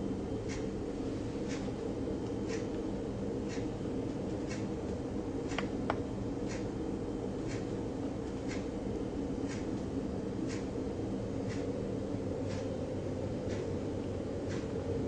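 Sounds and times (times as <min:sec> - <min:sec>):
low room hum: 0:00.0 - 0:15.0
soft regular ticking: 0:00.4 - 0:00.7, 0:02.2 - 0:03.7, 0:04.3 - 0:06.7, 0:07.4 - 0:14.8.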